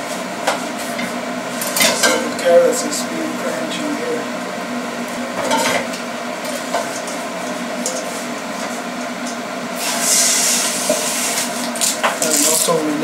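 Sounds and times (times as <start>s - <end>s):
steady hum: 0.0s - 13.0s
water boiling in a pan: 4.6s - 12.8s
loud hiss: 9.8s - 11.5s.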